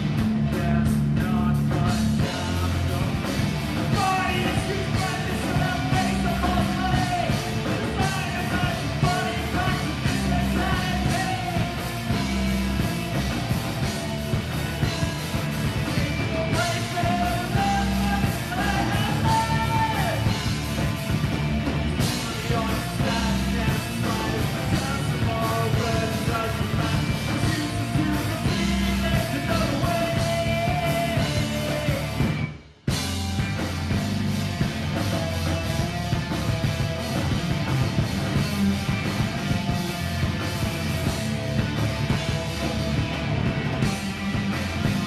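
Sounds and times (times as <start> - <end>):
drum kit: 0.0 - 45.0
electric guitars: 0.0 - 45.0
person singing: 15.9 - 20.4.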